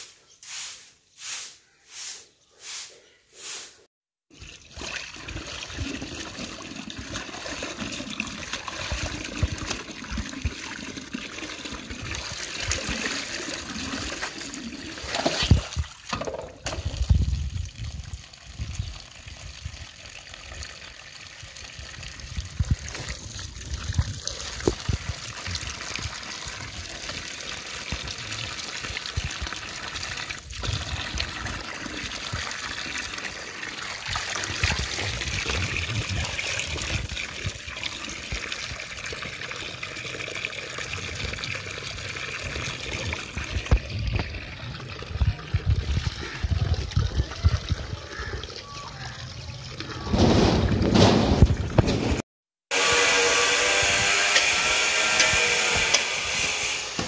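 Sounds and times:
tap water pouring into basin: 4.3 - 52.0
wet cloth splashing and sloshing: 12.3 - 16.1.

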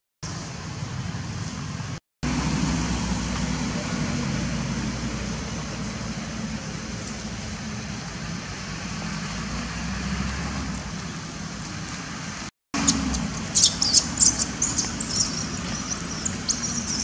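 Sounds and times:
baby monkey distress squeals: 13.6 - 17.0.

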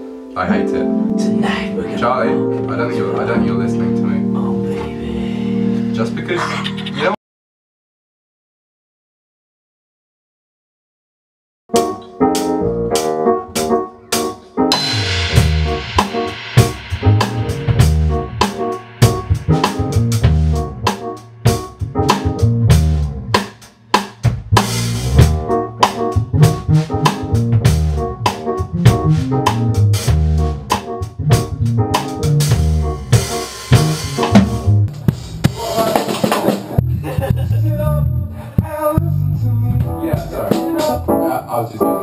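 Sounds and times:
funk band groove: 11.7 - 42.0
snare and kick drum strokes: 14.7 - 36.9, 39.8 - 41.0.

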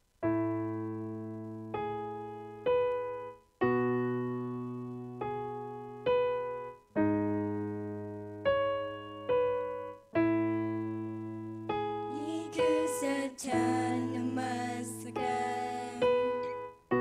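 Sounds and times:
keyboard piano chords: 0.1 - 17.0.

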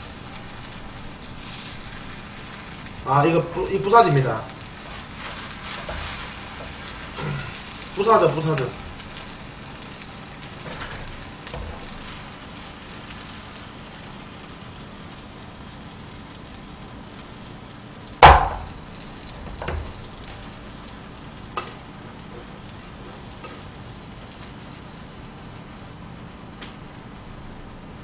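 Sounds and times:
pancake sizzling in a pan: 0.0 - 28.0
metal turner knocking on pan: 18.2 - 18.7.

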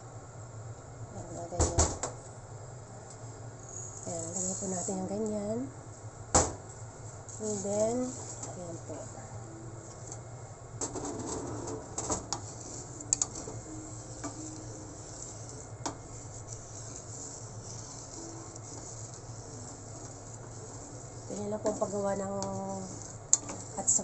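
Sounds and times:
low steady hum: 0.0 - 24.0
wooden spatula scraping pan: 7.4 - 8.7, 11.3 - 24.0.

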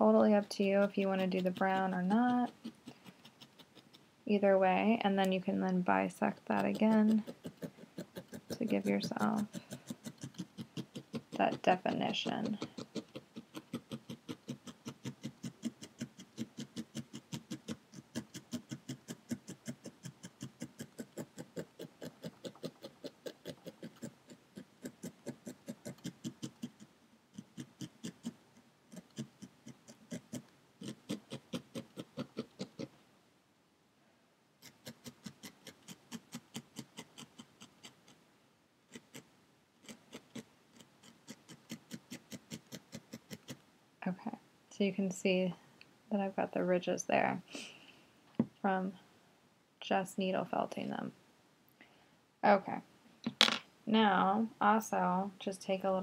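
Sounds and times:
felting needle poking foam: 0.0 - 32.9, 34.6 - 38.2, 38.9 - 43.6.

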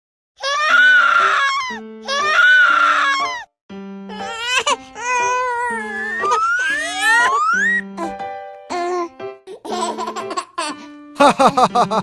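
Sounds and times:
young child crying: 0.4 - 3.5, 4.1 - 9.1
light background music: 0.6 - 12.0.

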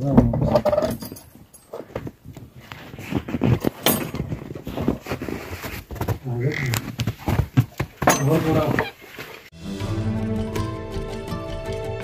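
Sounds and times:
metal latch and chain rattling: 0.5 - 1.8, 3.8 - 4.3.

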